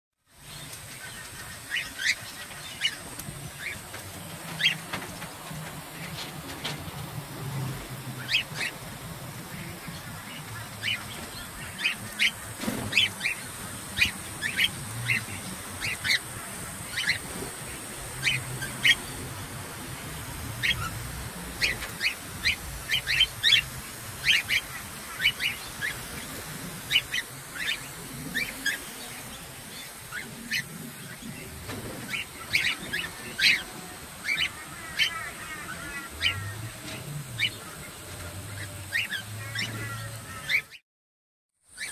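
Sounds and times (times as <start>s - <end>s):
water spray hissing: 0.3s - 39.5s
cockatiels chirping: 0.6s - 3.9s, 8.2s - 8.8s, 9.6s - 19.2s, 20.6s - 36.5s, 38.6s - 40.8s.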